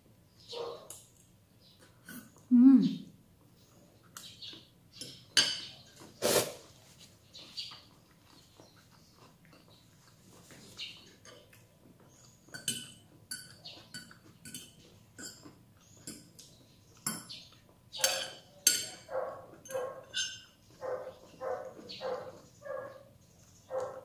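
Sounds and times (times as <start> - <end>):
spoon clinking against a dish: 5.0 - 5.9, 12.2 - 20.6.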